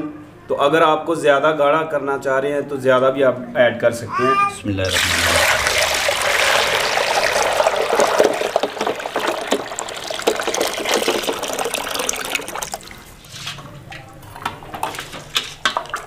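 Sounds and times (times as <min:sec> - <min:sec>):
milk pouring into steel bowl: 0:04.8 - 0:13.1.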